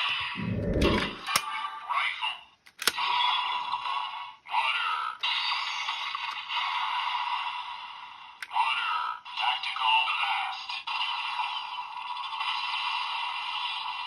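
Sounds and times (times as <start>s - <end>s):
sharp plastic clicks: 2.7s - 3.0s
recorded voice through small speaker: 4.5s - 5.2s, 8.5s - 10.9s.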